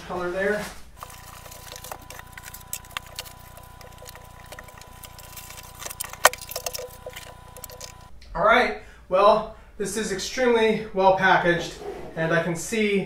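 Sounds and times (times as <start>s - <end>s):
faint steady hum: 0.9s - 9.8s.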